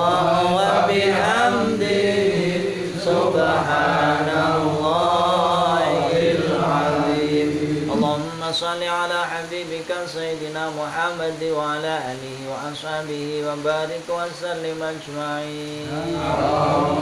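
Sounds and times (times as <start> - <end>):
men chanting together: 0.0 - 8.7, 15.4 - 17.0.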